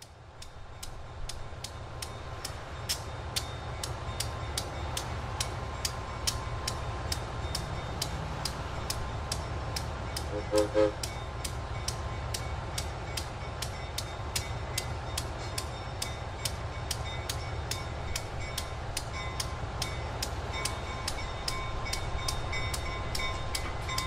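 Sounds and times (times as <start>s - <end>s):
diesel locomotive idling: 0.0s - 24.0s
sharp regular ticks: 0.0s - 24.0s
locomotive horn toots: 10.2s - 11.2s.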